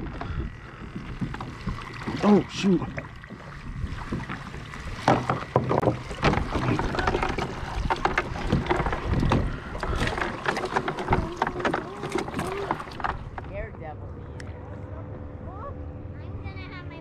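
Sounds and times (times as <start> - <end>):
water splashing and dripping: 0.0 - 13.5.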